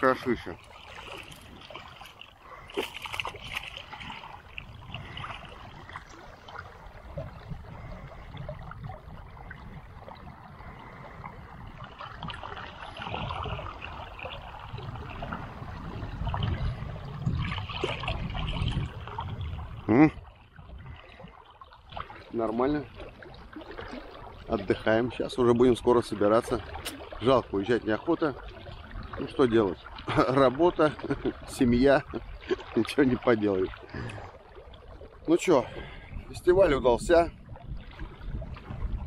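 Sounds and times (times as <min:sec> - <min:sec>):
water lapping: 0:00.0 - 0:39.0
fish thrashing and splashing: 0:00.6 - 0:07.1.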